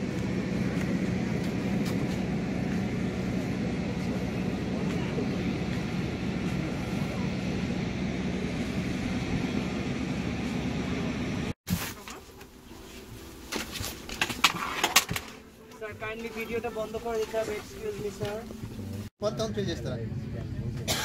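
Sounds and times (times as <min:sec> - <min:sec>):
aircraft engine drone: 0:00.0 - 0:11.6
faint voices: 0:02.5 - 0:09.3.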